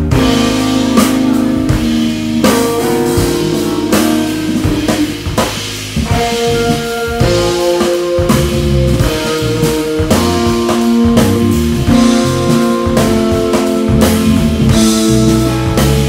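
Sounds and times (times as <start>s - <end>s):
drum and cymbal accents: 0.0s - 16.0s
electric guitar chords: 0.0s - 16.0s
jazz trio playing: 0.0s - 16.0s
keyboards: 0.0s - 16.0s.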